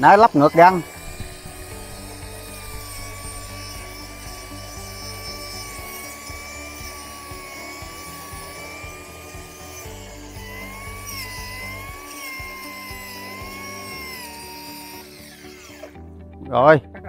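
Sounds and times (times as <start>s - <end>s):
brush cutter motor whine: 0.0s - 16.2s.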